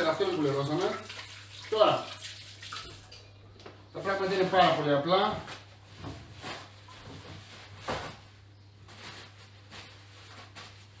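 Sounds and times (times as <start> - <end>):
low electrical hum: 0.0 - 11.0
kitchen handling rustles and knocks: 4.6 - 11.0.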